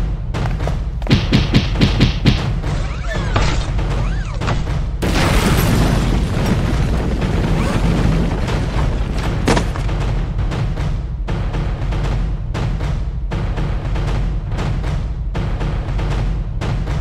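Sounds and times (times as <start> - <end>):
dramatic music with bass pulse: 6.5 - 17.0.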